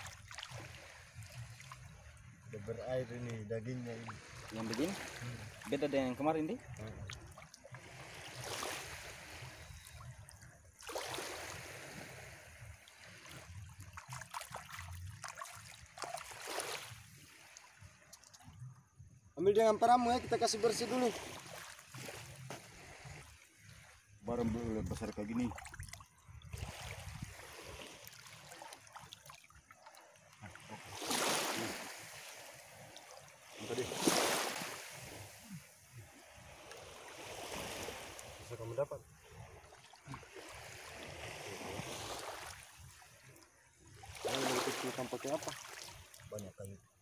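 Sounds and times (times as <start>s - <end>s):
seawater splashing and sloshing: 0.0s - 18.6s, 20.0s - 46.8s
hands splashing in shallow water: 13.0s - 18.4s, 44.1s - 46.4s.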